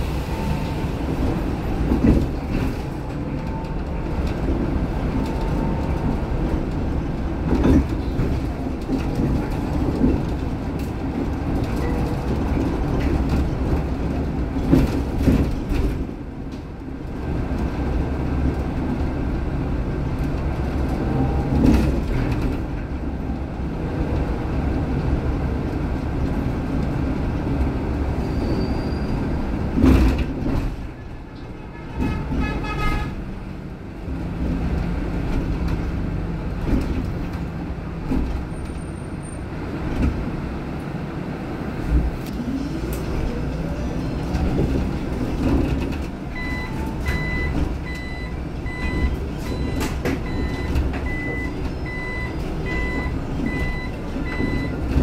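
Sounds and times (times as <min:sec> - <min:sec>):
bus engine rumble and road noise: 0:00.0 - 0:55.0
rattles and clatters: 0:44.2 - 0:51.4.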